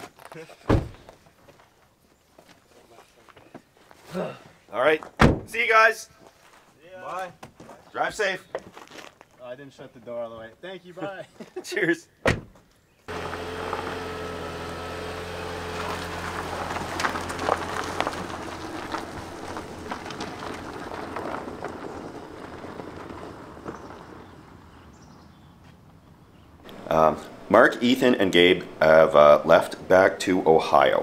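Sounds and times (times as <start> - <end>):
tyres crunching on gravel: 6.2 - 10.2, 13.1 - 25.3, 26.6 - 31.0
car engine hum: 13.1 - 25.1, 26.6 - 31.0.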